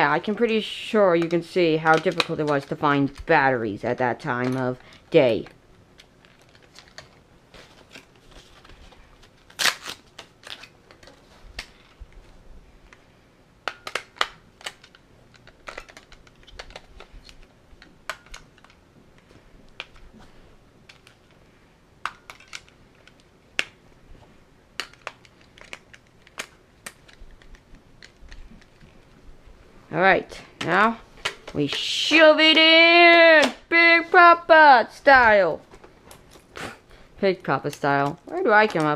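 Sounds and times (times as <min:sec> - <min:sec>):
batteries clicking into plastic holder: 0:01.2 - 0:03.2.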